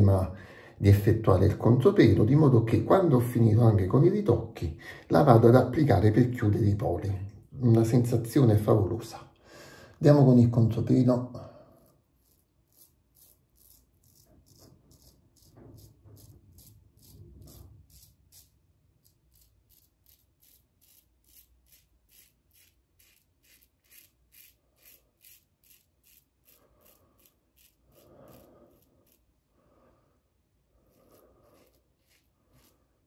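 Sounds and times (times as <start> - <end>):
razor scraping stubble: 11.8 - 29.4, 30.7 - 33.0.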